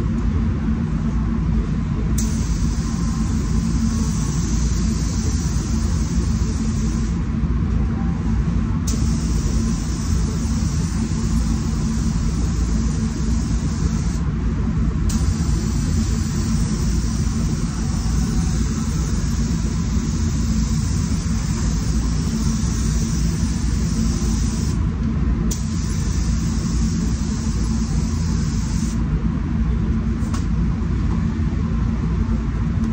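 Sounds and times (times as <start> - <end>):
low rumble of air-handling fans: 0.0 - 32.9
spray gun hissing: 2.2 - 7.2, 8.9 - 14.2, 15.1 - 24.8, 25.5 - 29.0.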